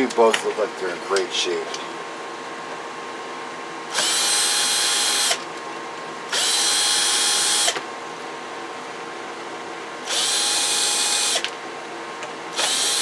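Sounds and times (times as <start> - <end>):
power screwdriver motor whine: 3.9 - 5.4, 6.3 - 7.8, 10.0 - 11.5, 12.5 - 13.0.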